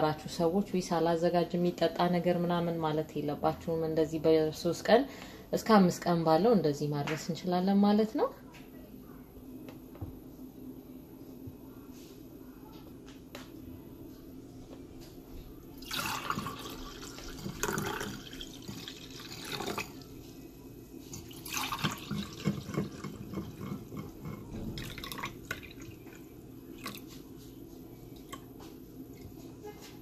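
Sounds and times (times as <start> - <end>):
wine pouring into glass: 15.8 - 20.0, 21.1 - 26.2.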